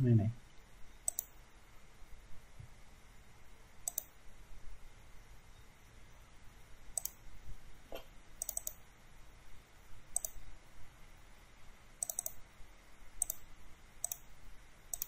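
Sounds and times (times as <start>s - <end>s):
mouse buttons clicking: 1.0s - 1.4s, 3.8s - 4.1s, 7.0s - 7.2s, 8.4s - 8.8s, 10.2s - 10.4s, 12.0s - 12.4s, 13.2s - 13.4s, 14.0s - 14.2s.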